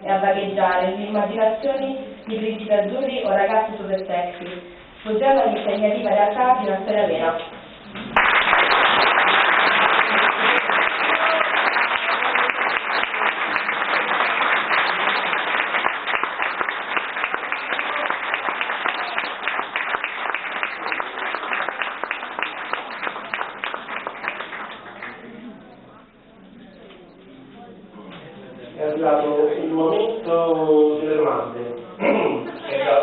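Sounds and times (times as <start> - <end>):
audience applause: 8.1 - 25.6.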